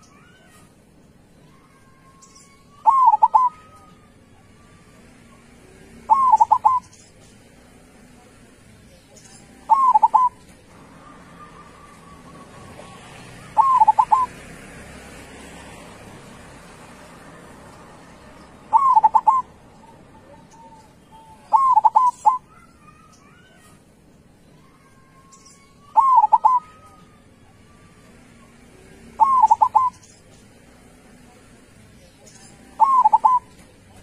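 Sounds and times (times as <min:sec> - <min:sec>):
dove cooing: 0:02.8 - 0:03.8, 0:06.0 - 0:07.0, 0:09.6 - 0:14.4, 0:18.6 - 0:22.6, 0:25.9 - 0:27.2, 0:29.1 - 0:30.0, 0:32.6 - 0:33.7.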